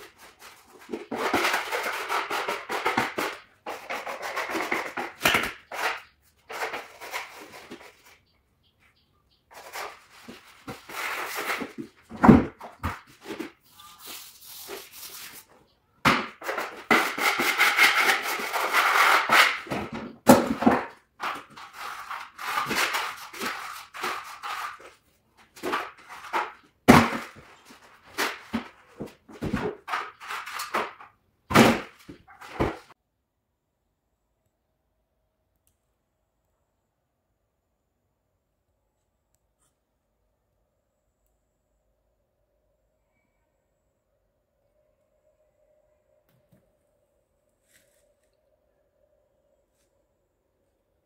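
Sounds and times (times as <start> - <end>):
wallpaper rustling against wall: 0.0 - 8.3, 9.5 - 33.0.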